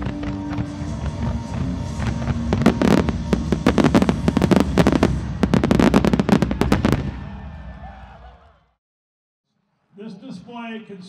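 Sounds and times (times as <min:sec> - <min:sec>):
fireworks bangs: 0:00.0 - 0:07.7
music: 0:00.0 - 0:07.8.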